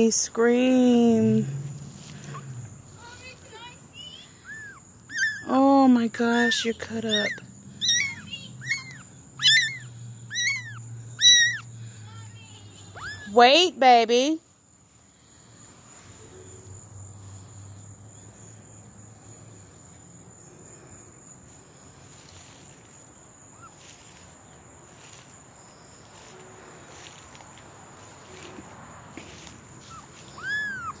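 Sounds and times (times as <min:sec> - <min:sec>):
high-pitched insect drone: 0:01.3 - 0:13.8
kitten mewing: 0:07.1 - 0:11.6, 0:29.9 - 0:31.0.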